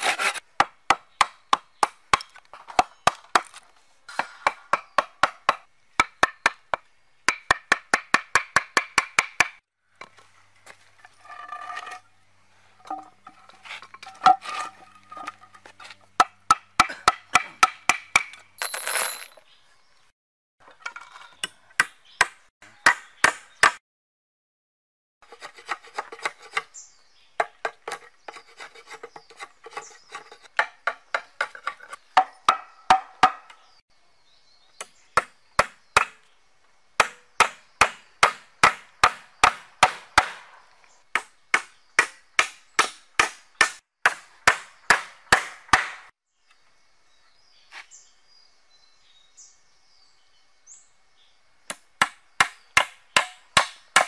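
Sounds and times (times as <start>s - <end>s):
hatchet striking wooden poles: 0.0s - 10.1s, 13.8s - 18.5s, 21.4s - 23.8s, 27.4s - 33.7s, 34.8s - 36.2s, 37.0s - 46.2s, 51.7s - 54.0s.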